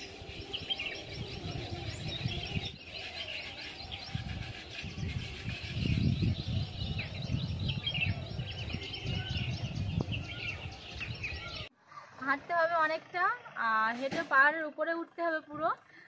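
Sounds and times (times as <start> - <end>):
small birds chirping: 0.0 - 12.3.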